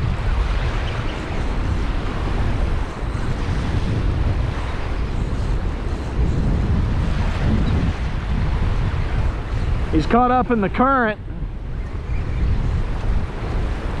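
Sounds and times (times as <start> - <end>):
small waves washing on beach: 0.0 - 14.0
wind buffeting microphone: 0.0 - 14.0.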